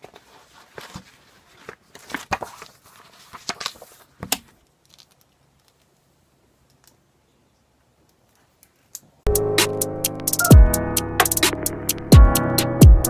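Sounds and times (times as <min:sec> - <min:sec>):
paper pages rustling: 0:00.0 - 0:05.9.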